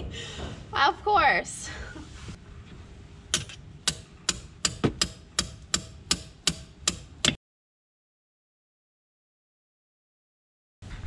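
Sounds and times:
hammer striking a wrench: 3.3s - 7.4s.

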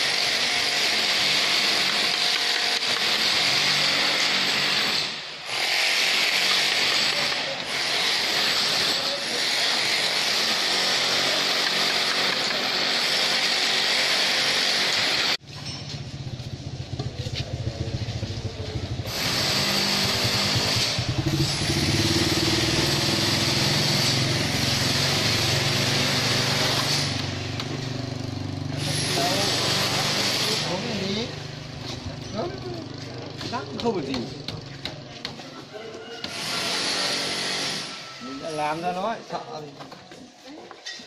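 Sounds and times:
small engine throbbing: 16.0s - 32.9s
high hissing machine noise: 19.0s - 27.9s, 28.7s - 31.7s, 36.3s - 38.8s.

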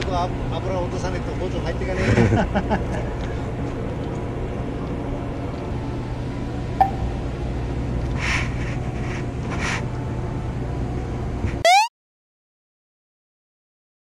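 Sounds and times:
outdoor background noise: 0.0s - 11.7s
rising electronic sweep: 11.7s - 11.9s.

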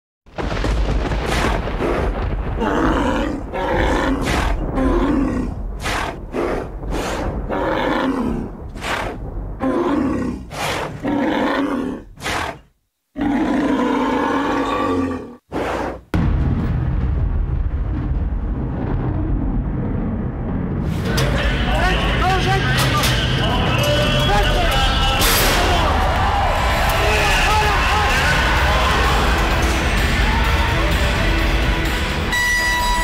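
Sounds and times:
deep animal roars: 1.3s - 12.6s, 13.2s - 16.0s.

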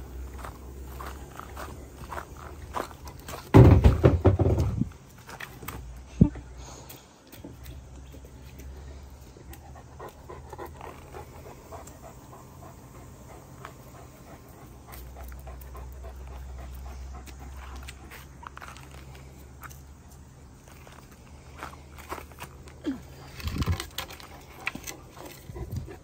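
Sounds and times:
dog panting: 9.1s - 19.4s, 24.2s - 26.0s
crunches on dirt and leaves: 13.6s - 25.6s.

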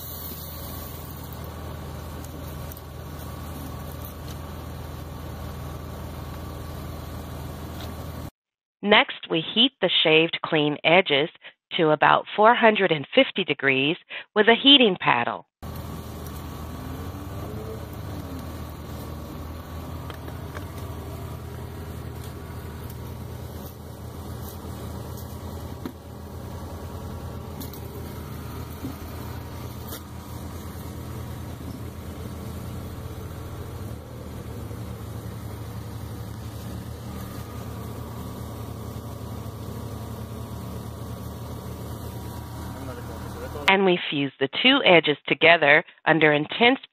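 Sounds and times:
low machine hum: 0.0s - 8.3s, 15.6s - 43.7s.

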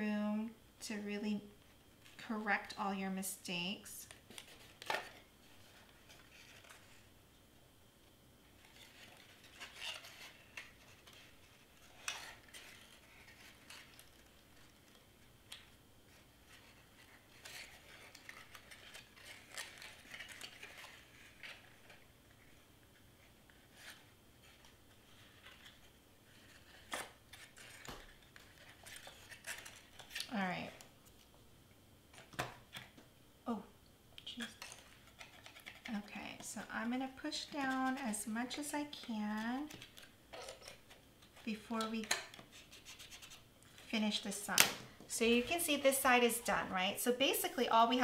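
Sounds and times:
cardstock rustling and scraping: 4.0s - 7.1s, 8.5s - 31.2s, 34.3s - 44.3s.

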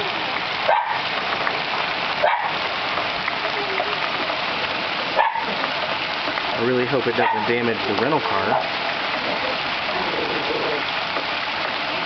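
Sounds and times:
heavy hail falling: 0.0s - 12.0s
dog barking: 0.7s - 1.0s, 2.2s - 2.6s, 5.2s - 5.6s, 7.2s - 7.5s, 8.4s - 8.7s.

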